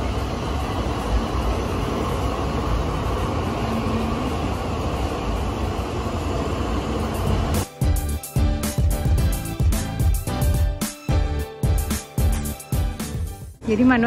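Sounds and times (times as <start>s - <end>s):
tram rumbling past: 0.0s - 10.4s.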